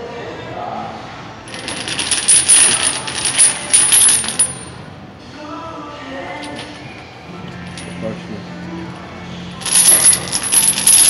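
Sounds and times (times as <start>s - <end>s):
steel chain clanking: 1.5s - 4.8s, 9.6s - 11.0s.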